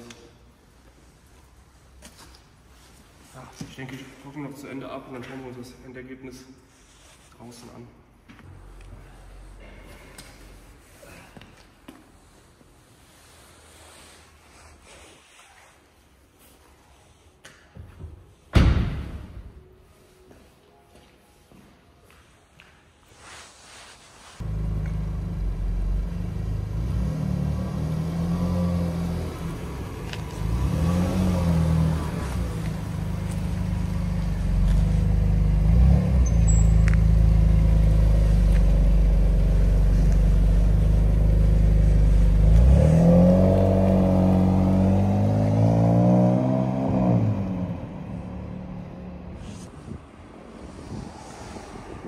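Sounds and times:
car engine revving past: 0:24.5 - 0:36.3, 0:40.9 - 0:49.4.

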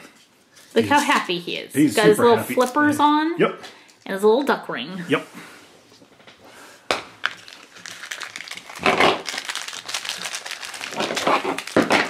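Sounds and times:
foil wrapper crinkling: 0:07.2 - 0:12.0.

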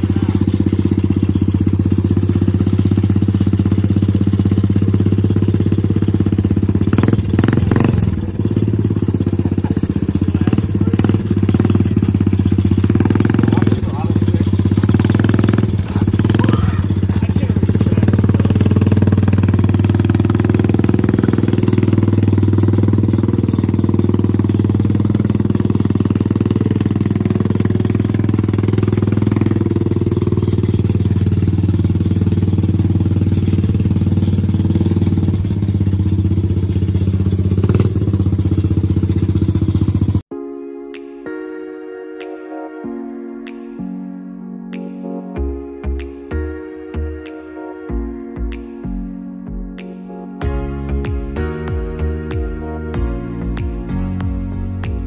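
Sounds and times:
small engine running steadily: 0:00.0 - 0:40.3.

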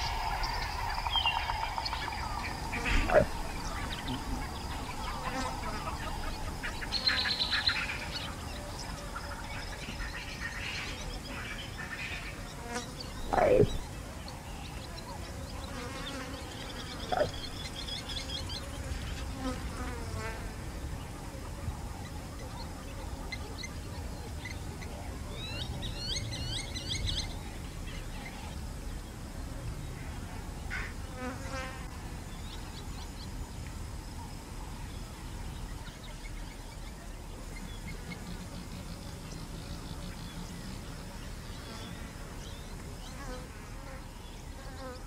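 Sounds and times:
bird chirps: 0:00.0 - 0:18.6
insects buzzing: 0:00.0 - 0:24.8, 0:25.4 - 0:45.0.

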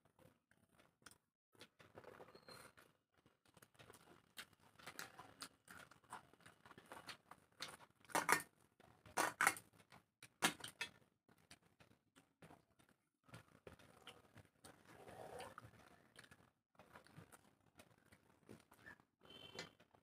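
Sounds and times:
wet chewing and mouth smacks: 0:12.2 - 0:19.0.

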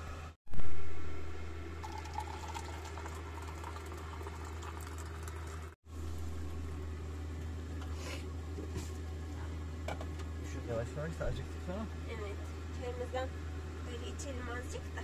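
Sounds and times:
steady low hum: 0:00.0 - 0:15.0
water boiling: 0:00.6 - 0:06.2.

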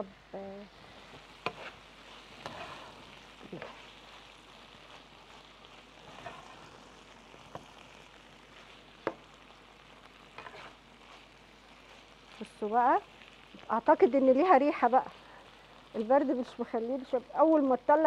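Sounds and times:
meat and vegetables sizzling: 0:00.0 - 0:18.0.

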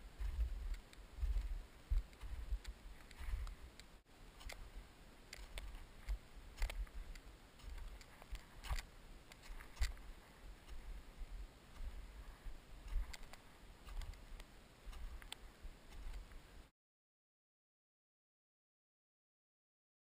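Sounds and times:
footsteps crunching on snow: 0:00.0 - 0:03.7.

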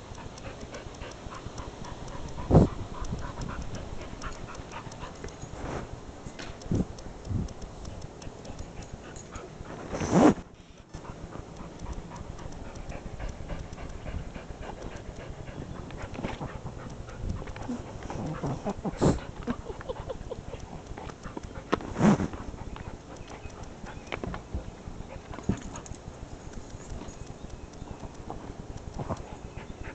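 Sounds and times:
small dog panting: 0:00.0 - 0:05.8, 0:07.4 - 0:29.9
rustling: 0:03.8 - 0:06.9.

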